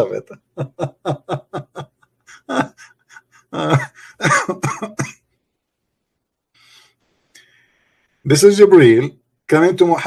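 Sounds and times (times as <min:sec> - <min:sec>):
man laughing hard: 0:00.3 - 0:05.0
man coughing: 0:02.3 - 0:05.2.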